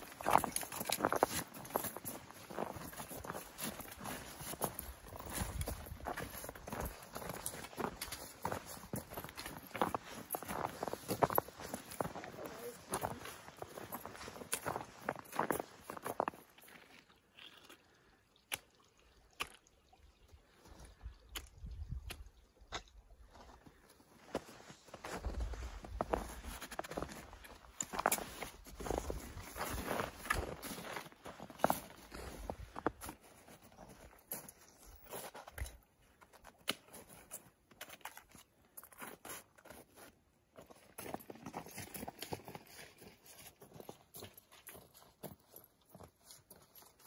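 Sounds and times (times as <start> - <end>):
footsteps crunching on snow: 0.0 - 16.9, 23.3 - 47.0
wind rumble on microphone: 21.5 - 22.3.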